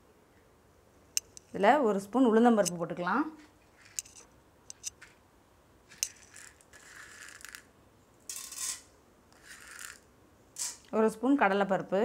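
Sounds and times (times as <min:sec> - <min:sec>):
metal spoon clinking and scraping: 0:03.8 - 0:05.0, 0:05.9 - 0:07.6, 0:08.3 - 0:10.0
dry lentils rattling into pan: 0:05.9 - 0:07.7, 0:08.3 - 0:10.0, 0:10.6 - 0:10.9.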